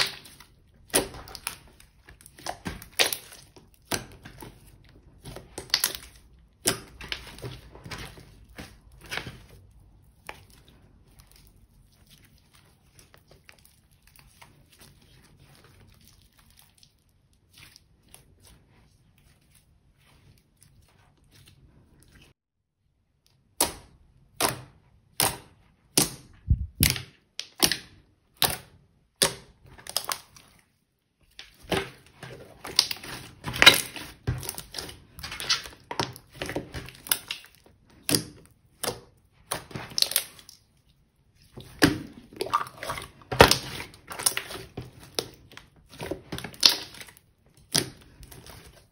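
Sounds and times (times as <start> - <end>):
slime squelching: 0.0 - 22.4, 23.1 - 48.9
slime stretching: 24.2 - 48.9.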